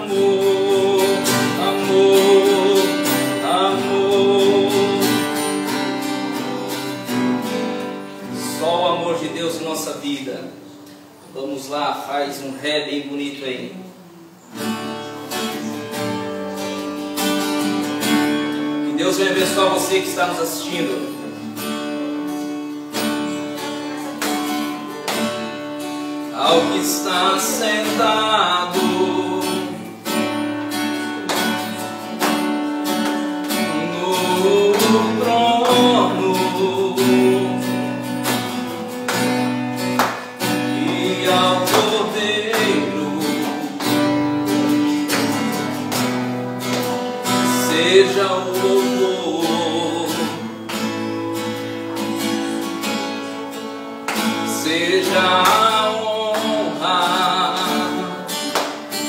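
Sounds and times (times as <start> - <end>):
man singing: 0.0 - 6.4, 8.2 - 10.4, 18.7 - 21.3, 26.2 - 31.4, 33.4 - 38.3, 40.2 - 45.7, 47.2 - 50.9, 54.3 - 59.0
acoustic guitar strumming: 0.0 - 59.0.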